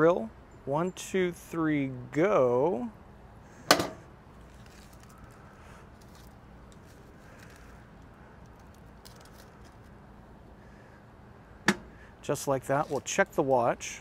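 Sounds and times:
low steady background noise: 0.0 - 14.0
grill lid knocking shut: 3.7 - 4.0, 11.6 - 11.9
foil packets crinkling: 4.4 - 7.8, 8.4 - 9.9.

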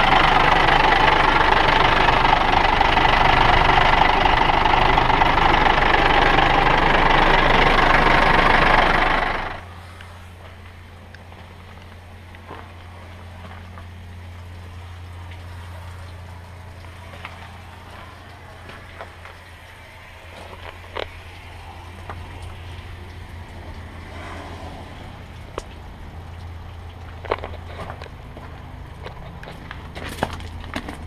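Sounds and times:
truck engine idling: 0.0 - 31.0.

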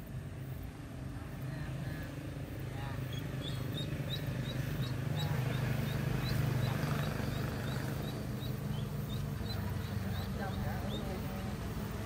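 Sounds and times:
steady low hum: 0.0 - 12.0
duckling peeping: 2.9 - 12.0.

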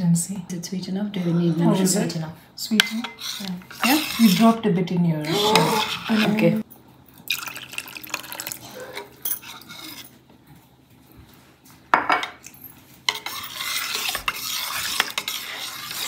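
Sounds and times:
spoon stirring and scraping bowl: 2.8 - 4.6, 5.3 - 6.6, 8.6 - 10.2, 12.2 - 16.0
water pouring into a bowl: 7.2 - 8.7.

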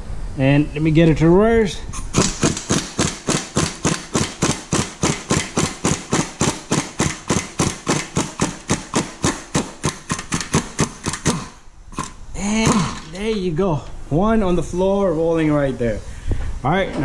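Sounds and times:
impact wrench hammering: 2.0 - 13.4.

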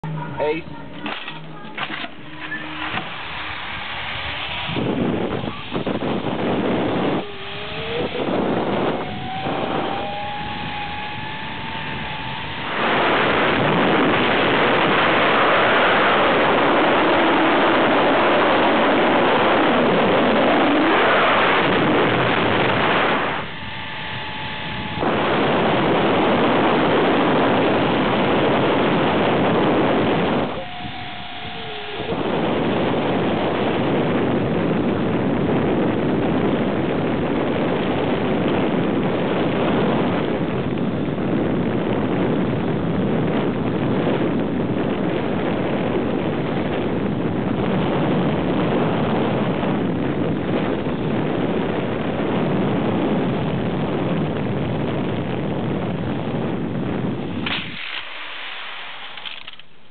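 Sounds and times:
zipline trolley whine: 0.0 - 58.0
rushing air buffeting microphone: 0.0 - 59.2.

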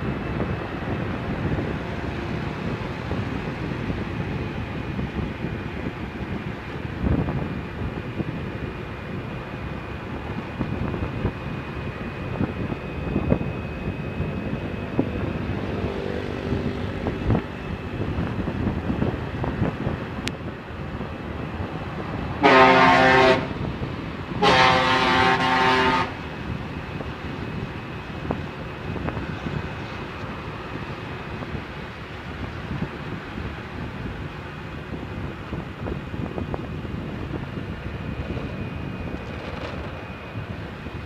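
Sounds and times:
road and wind noise: 0.0 - 41.0
vehicle horn blasts: 22.4 - 23.6, 24.4 - 26.2.

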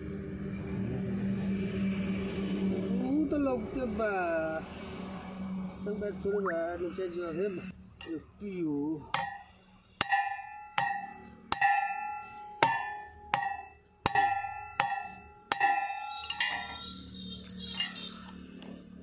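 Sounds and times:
hammer blows on metal: 9.0 - 18.4.

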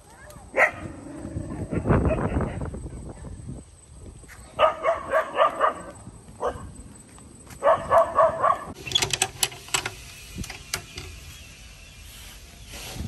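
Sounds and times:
dog barking: 0.5 - 0.9, 1.6 - 3.3, 4.6 - 6.7, 7.6 - 8.8
clicks and rustles: 8.8 - 11.3.

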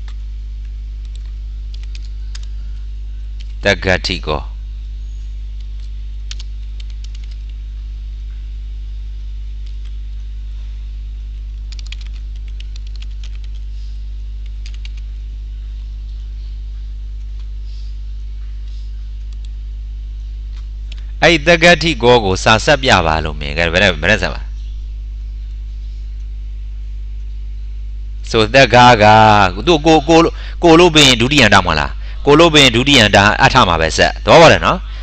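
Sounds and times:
low electrical hum: 0.0 - 35.0
keyboard typing: 1.0 - 2.5, 5.7 - 7.6, 11.6 - 13.7, 14.4 - 15.1.

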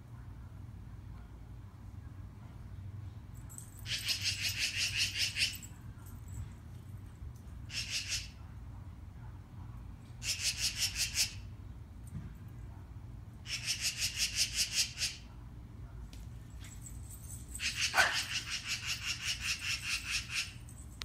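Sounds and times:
magpie chattering: 3.9 - 5.6, 7.7 - 8.4, 10.2 - 11.4, 13.5 - 15.2, 17.6 - 20.6.

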